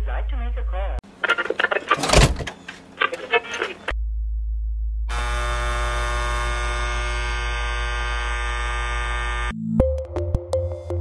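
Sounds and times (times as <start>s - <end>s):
steady electric hum: 1.1s - 9.5s
electric alarm buzz: 5.1s - 9.6s.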